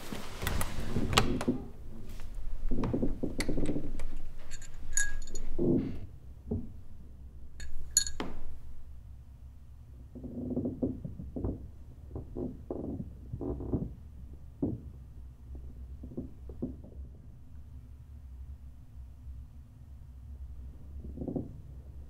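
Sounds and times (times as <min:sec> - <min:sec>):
bedding rustling: 0:00.0 - 0:02.8
small metal chime tinkling: 0:04.5 - 0:05.5, 0:07.6 - 0:08.5.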